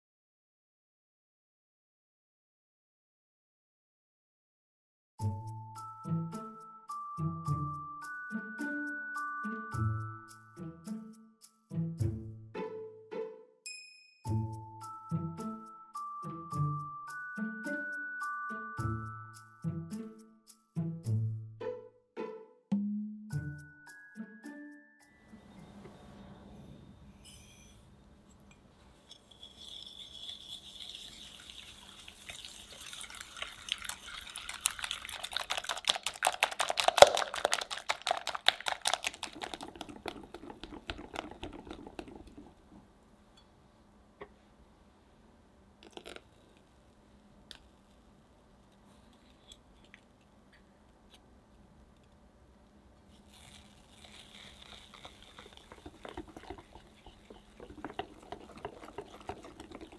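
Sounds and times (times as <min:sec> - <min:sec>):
whisk rattling against glass bowl: 0:29.1 - 0:42.8, 0:53.4 - 0:59.9.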